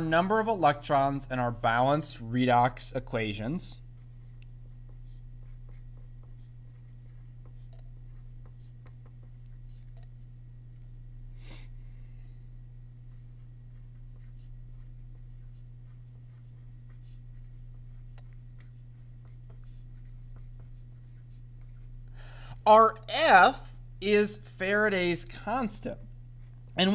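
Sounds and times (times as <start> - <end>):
steady low hum: 0.0 - 26.9
pen scratching on paper: 4.0 - 10.2, 13.1 - 21.9.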